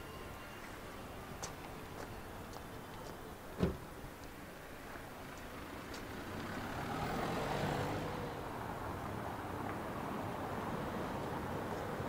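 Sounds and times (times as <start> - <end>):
car driving on cobblestones: 0.2 - 12.0
brief thump: 3.6 - 3.8.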